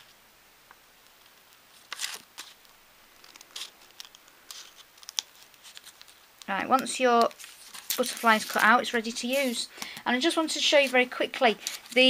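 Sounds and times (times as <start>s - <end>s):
scissors snipping plastic film: 1.8s - 10.0s.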